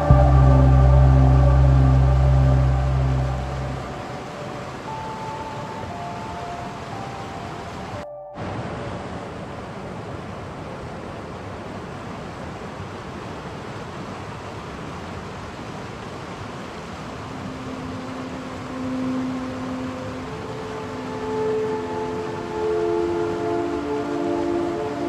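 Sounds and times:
low held musical note: 0.0s - 9.2s
whitewater rushing over rocks: 12.2s - 25.0s.

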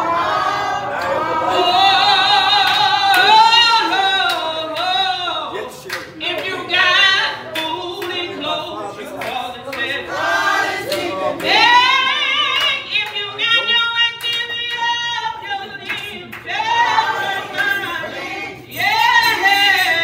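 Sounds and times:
choir singing gospel song: 0.0s - 20.0s
hands clapping along: 2.6s - 5.0s, 5.8s - 6.6s, 7.5s - 8.4s, 9.1s - 10.2s, 10.8s - 15.0s, 15.8s - 18.0s.

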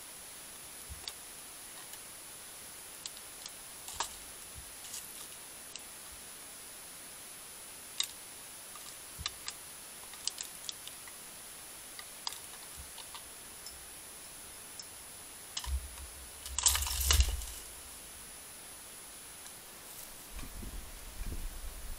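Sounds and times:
bird feeder clattering: 15.6s - 17.8s.

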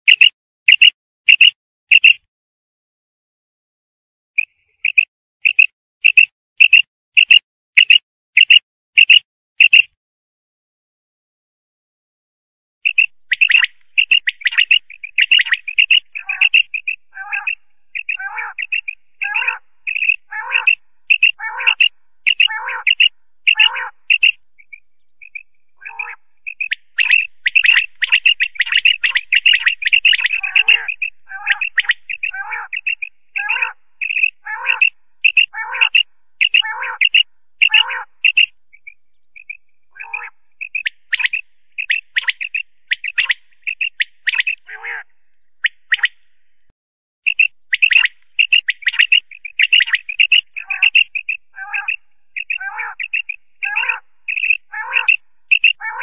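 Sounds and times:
quail calling: 12.9s - 46.2s, 47.3s - 56.0s.

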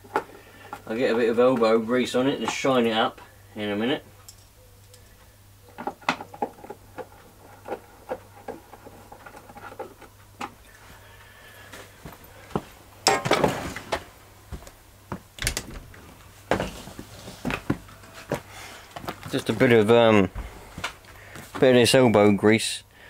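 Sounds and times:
hard objects knocking and clicking: 5.7s - 10.6s.

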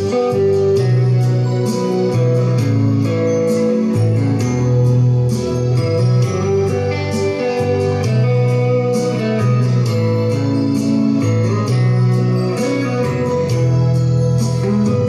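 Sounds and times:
instrumental music with bass and beat: 0.0s - 15.0s.

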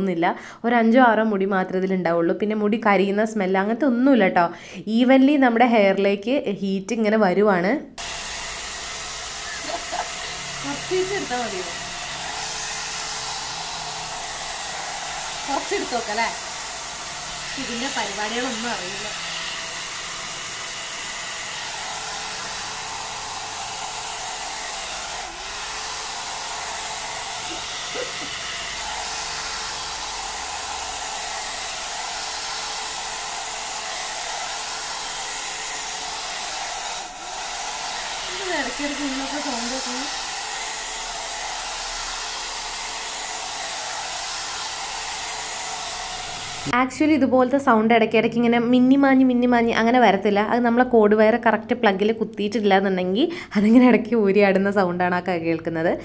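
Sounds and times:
hot-air brush blowing: 8.0s - 46.8s.

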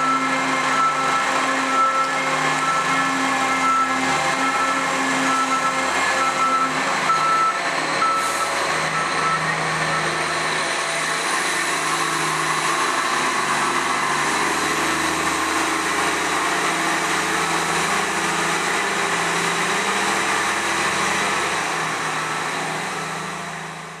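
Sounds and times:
reversing beeper: 0.0s - 18.8s
diesel truck engine running: 0.0s - 24.0s.

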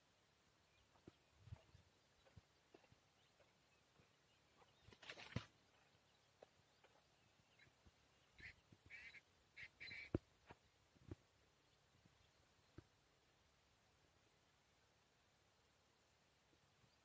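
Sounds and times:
bird calling: 0.7s - 10.2s
faint rustle: 0.7s - 13.0s.

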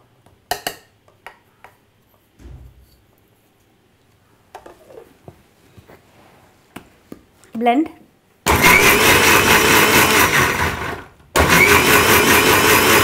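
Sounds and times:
dull thump: 2.4s - 2.9s.

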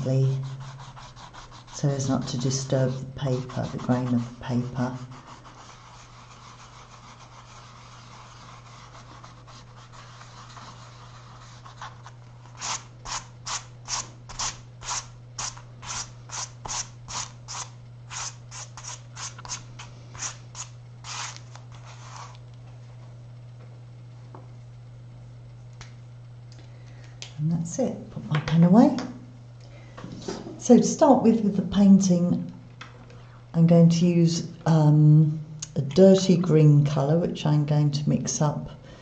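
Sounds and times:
eraser rubbing on paper: 0.2s - 22.4s.

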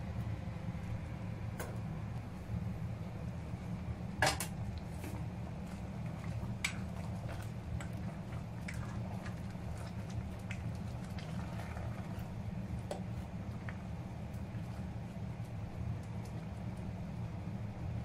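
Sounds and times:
steady low hum: 0.0s - 18.0s
ladle stirring in a pot: 4.8s - 16.9s.

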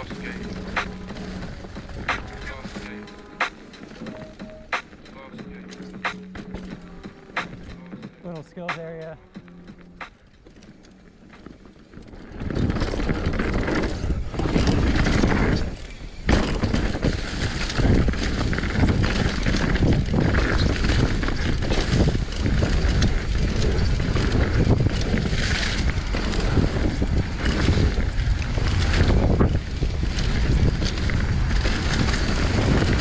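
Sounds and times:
bike tyres rattling over ground: 0.0s - 33.0s
wind rushing over microphone: 12.2s - 33.0s.

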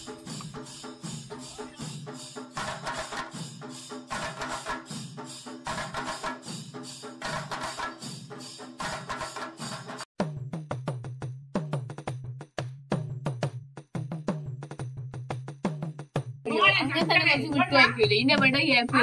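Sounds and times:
background music with percussion beat: 0.0s - 19.0s.

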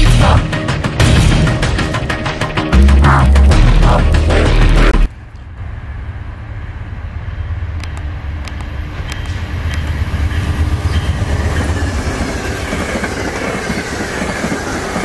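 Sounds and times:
diesel locomotive engine rumble: 0.0s - 15.0s
train wheels on rails: 5.1s - 15.0s.

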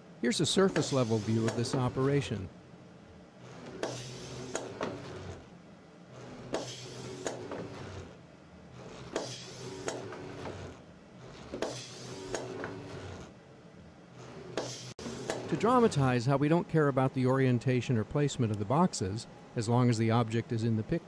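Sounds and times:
conveyor belt humming: 0.0s - 21.0s
robot arm motors whirring: 0.6s - 2.3s, 3.4s - 13.4s, 14.1s - 15.9s
hiss: 0.8s - 1.6s, 3.8s - 4.6s, 6.6s - 7.4s, 9.2s - 10.0s, 11.6s - 12.4s, 14.6s - 15.4s.

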